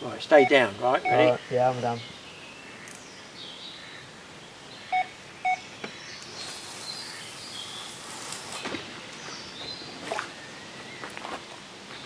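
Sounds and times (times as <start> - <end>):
bite alarm beeps: 0.4 - 1.4, 4.9 - 5.6.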